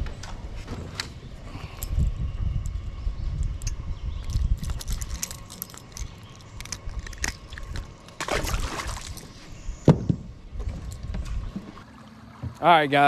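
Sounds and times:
metal hooks and pliers rattling: 3.6 - 8.2
fish splashing into water: 8.2 - 9.3.

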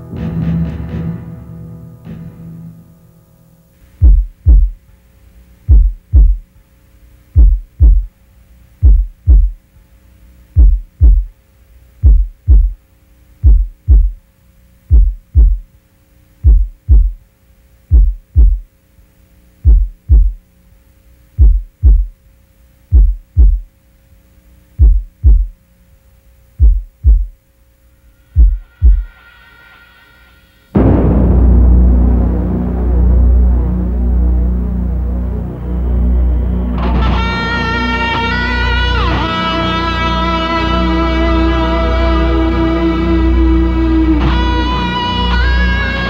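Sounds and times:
faint steady hum: 0.0 - 46.0
heartbeat thumps: 4.0 - 4.8, 5.6 - 6.5, 7.3 - 8.1, 8.8 - 9.6, 10.5 - 11.4, 12.0 - 12.8, 13.4 - 14.2, 14.8 - 15.7, 16.4 - 17.2, 17.8 - 18.7, 19.6 - 20.5, 21.3 - 22.2, 22.9 - 23.7, 24.7 - 25.6, 26.6 - 27.4, 28.4 - 29.2.

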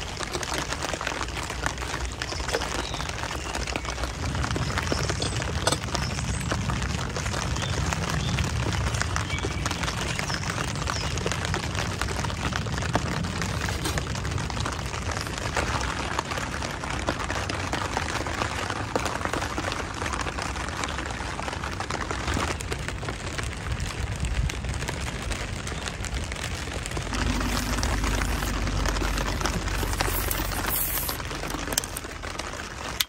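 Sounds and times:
rain pattering on a tent: 0.0 - 33.0
low rumble: 26.4 - 33.0.

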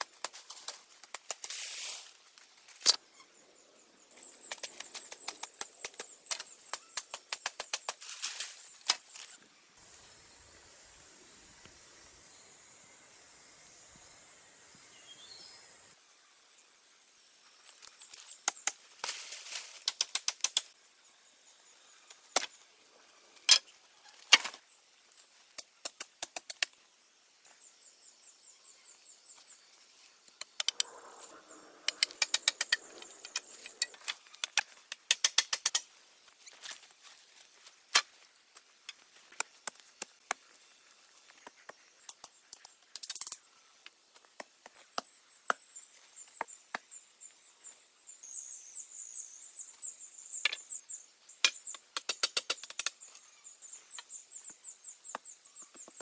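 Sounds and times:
rustling in dry leaves: 0.2 - 2.8, 8.0 - 10.5, 18.9 - 20.0
knife clicking on bamboo sticks: 31.8 - 35.8.

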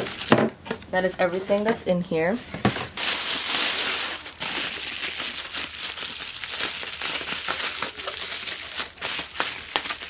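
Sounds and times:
bubble wrap crinkling: 0.0 - 0.4, 2.7 - 10.0.

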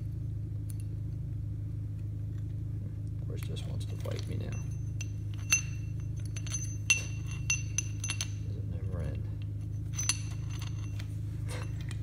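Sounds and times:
steady low hum: 0.0 - 12.0
metal chain links clinking: 3.8 - 12.0.

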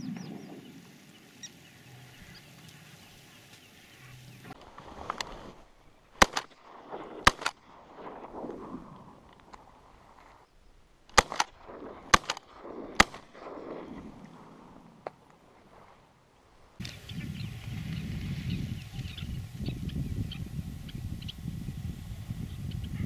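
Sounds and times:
shotgun shots with echo: 6.2 - 6.6, 7.2 - 7.6, 11.2 - 13.6.

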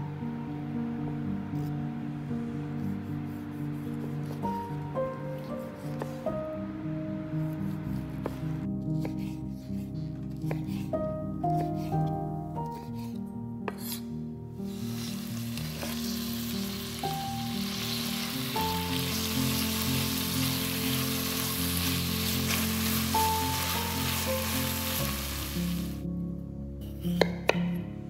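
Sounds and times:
soft background music: 0.0 - 28.0
vegetables sizzling in oil: 14.7 - 26.0.

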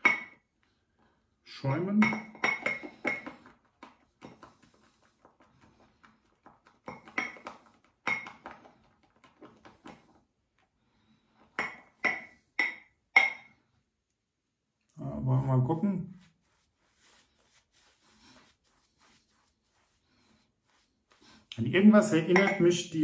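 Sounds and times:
shaving brush clinking on bowl: 22.3 - 22.8.

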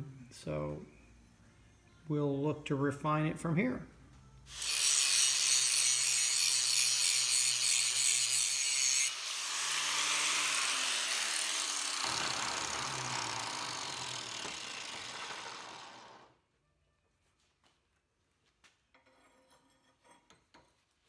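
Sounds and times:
angle grinder grinding steel: 4.5 - 16.3
grinder motor winding down: 9.1 - 16.3.

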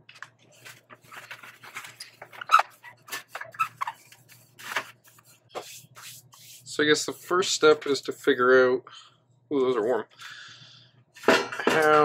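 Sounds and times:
short squeaks: 2.0 - 4.1.

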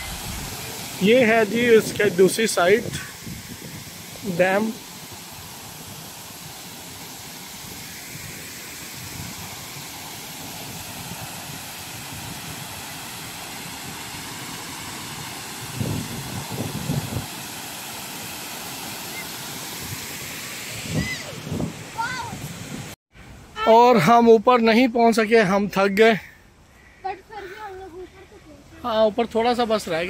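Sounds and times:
waterfall rushing into pool: 0.0 - 23.0.

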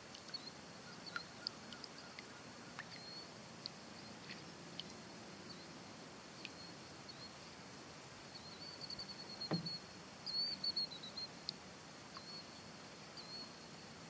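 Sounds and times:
faint steady hiss: 0.0 - 14.0
small birds chirping: 0.1 - 5.8, 8.3 - 13.7
sharp knock: 9.5 - 9.8.

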